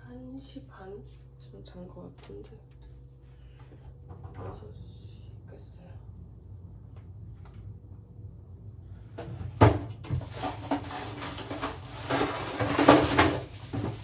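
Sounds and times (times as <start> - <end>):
objects clattering and rustling: 9.1 - 14.0.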